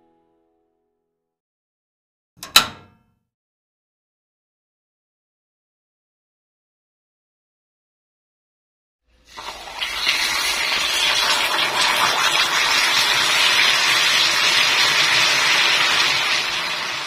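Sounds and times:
caramel sizzling and bubbling: 9.2 - 17.0.

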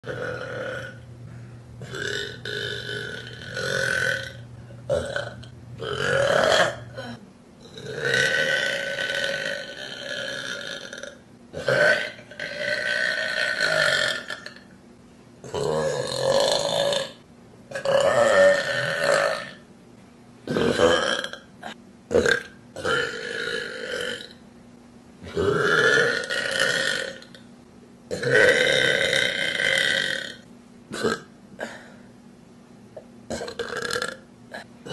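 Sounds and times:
woman burping: 0.0 - 1.0, 1.8 - 14.7, 20.5 - 24.3, 25.3 - 27.4, 28.1 - 32.0, 33.3 - 34.9.

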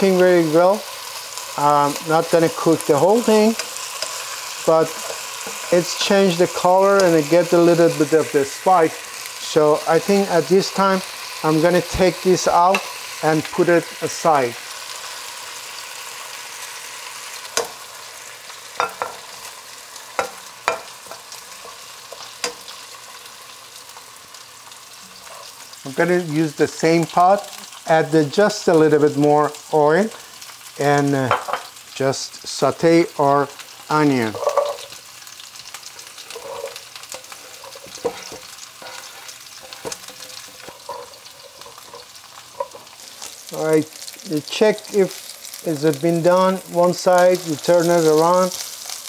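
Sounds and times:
oil sizzling under chicken: 0.0 - 49.0
tongs clinking against pot and bowl: 18.8 - 19.3, 20.2 - 22.7.

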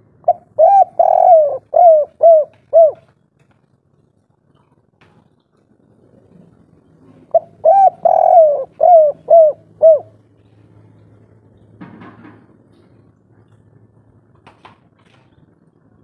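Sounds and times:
dove cooing: 0.0 - 3.1, 7.2 - 10.2.

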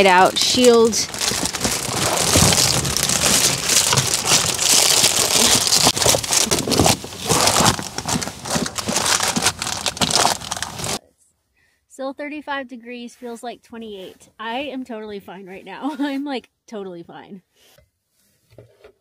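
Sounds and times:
foil covers crinkling: 0.0 - 11.0
small knocks and scrapes: 17.7 - 19.0.

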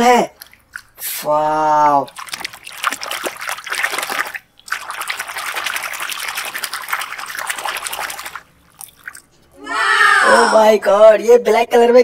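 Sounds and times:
water sloshing in a plastic tub: 0.0 - 9.6.

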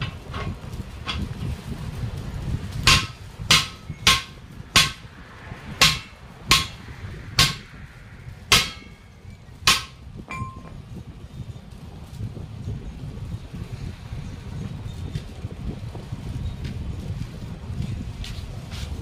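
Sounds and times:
hammer clanging on steel rim: 2.8 - 5.0, 5.8 - 6.8, 8.5 - 9.1, 9.7 - 10.8.

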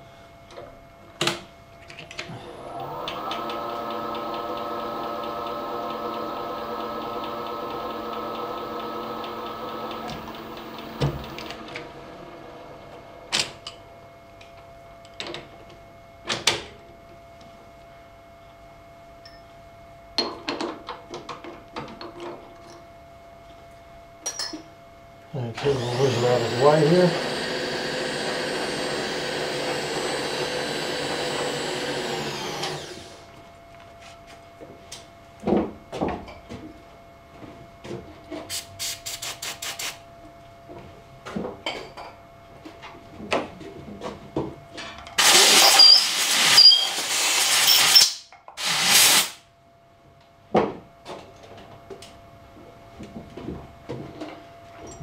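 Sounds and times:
compressed air blast: 38.5 - 40.0, 45.2 - 49.4
short hissing air puffs: 38.5 - 40.0, 45.2 - 49.4.

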